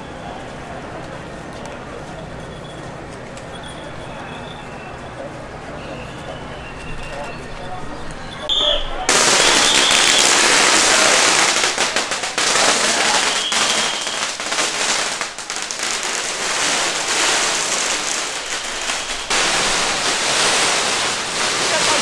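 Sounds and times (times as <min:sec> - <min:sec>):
firecrackers crackling: 0:08.5 - 0:22.0.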